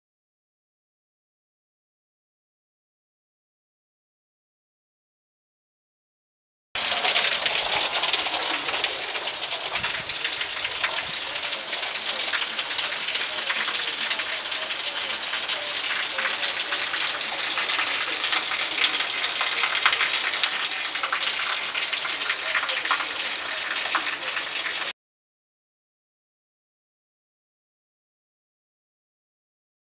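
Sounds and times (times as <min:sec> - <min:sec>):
heavy rain on concrete and gravel: 0:06.8 - 0:24.9.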